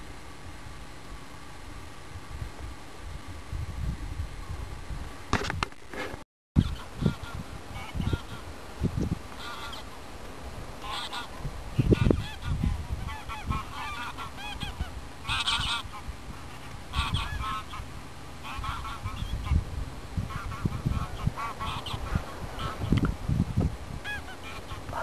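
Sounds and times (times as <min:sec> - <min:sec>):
geese honking: 0:06.6 - 0:08.5, 0:09.3 - 0:10.0, 0:10.8 - 0:19.6, 0:20.2 - 0:23.0, 0:24.0 - 0:25.0.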